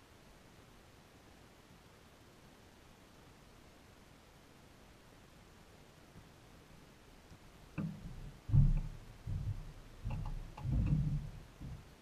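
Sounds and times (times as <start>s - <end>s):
footsteps on wooden dock: 7.8s - 12.0s.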